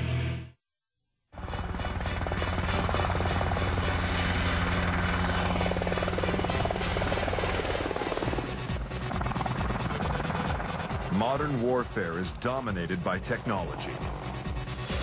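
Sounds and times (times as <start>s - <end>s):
engine drone: 1.4s - 13.0s
helicopter rotor blades beating: 1.4s - 15.0s.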